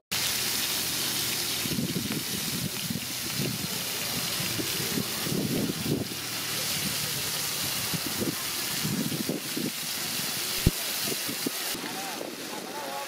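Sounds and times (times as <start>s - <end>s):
shrimp sizzling in oil: 0.1s - 13.0s.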